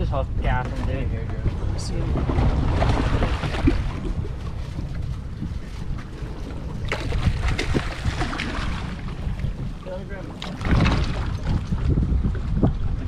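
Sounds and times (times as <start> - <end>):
water sloshing against boat: 0.0 - 13.0
wind noise on microphone: 0.0 - 13.0
short sharp splashes or knocks: 6.8 - 9.6, 10.4 - 11.7.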